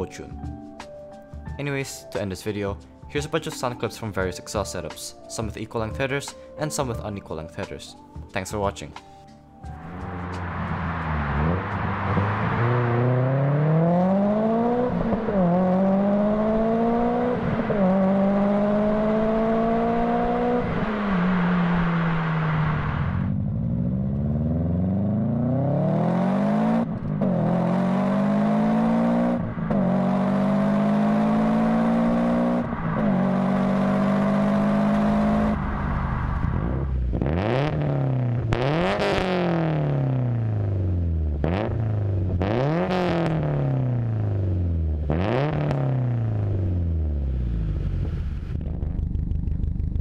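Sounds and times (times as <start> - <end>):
car engine accelerating through gears: 9.7 - 50.0.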